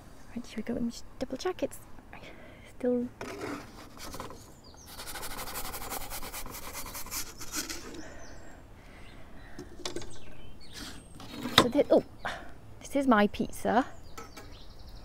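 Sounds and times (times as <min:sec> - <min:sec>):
wooden peel scraping stone: 0:03.2 - 0:08.0
birds chirping: 0:03.8 - 0:15.0.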